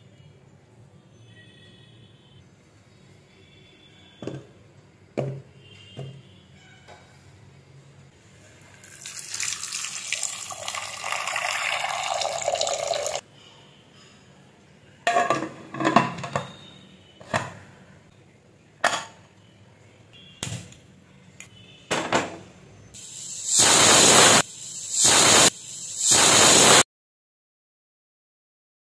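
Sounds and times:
water running into a pot: 8.7 - 13.2
pressure cooker whistle hissing: 8.8 - 13.2, 16.4 - 17.2, 23.0 - 26.9.

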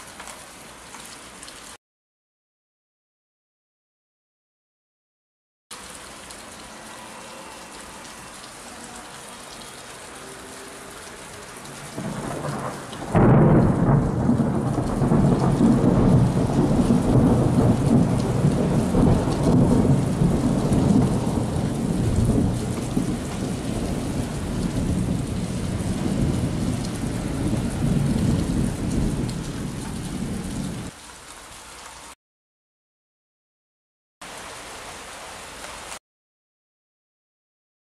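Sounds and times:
steady rain: 0.0 - 1.8, 5.7 - 32.2, 34.2 - 36.0
thunder rumbling and cracking: 11.9 - 30.9.

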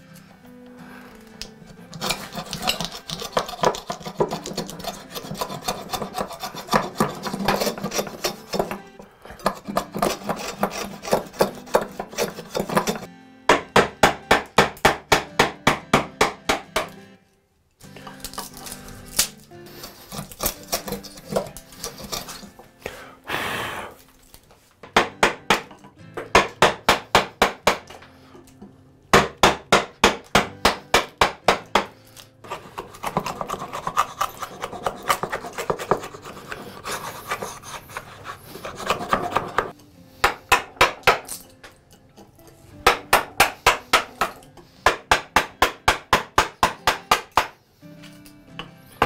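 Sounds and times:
plane scraping wood: 1.8 - 13.1, 19.6 - 22.6, 32.4 - 39.8
mallet tapping chisel: 1.9 - 17.0, 38.7 - 47.6.

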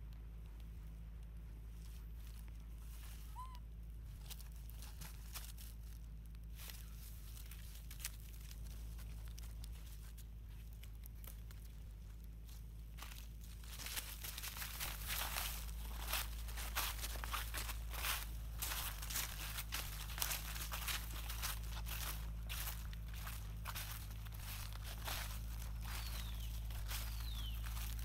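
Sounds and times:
dry leaves crackling: 1.5 - 28.0
monkey squeak: 3.2 - 3.6.

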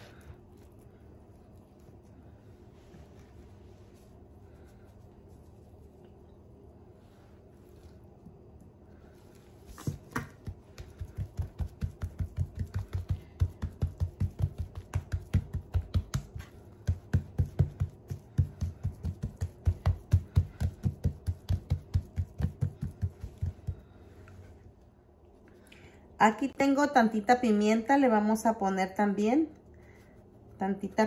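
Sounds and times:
hands slapping raw steak: 9.8 - 24.0.

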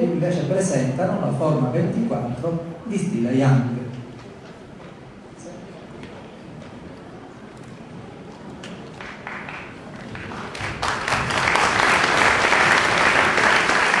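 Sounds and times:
audience applauding: 8.8 - 14.0.

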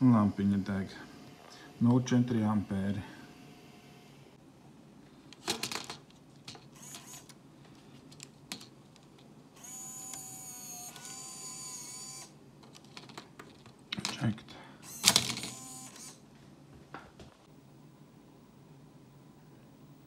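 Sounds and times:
tape mechanism motor whine: 0.0 - 4.4, 6.8 - 7.3, 9.6 - 12.4, 14.8 - 16.2.

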